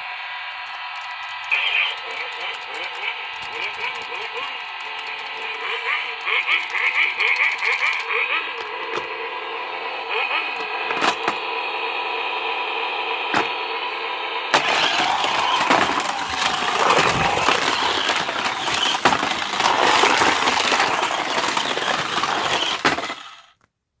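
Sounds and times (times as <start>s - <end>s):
toy car electronic engine sounds: 0.0s - 23.6s
rattling: 14.6s - 23.5s.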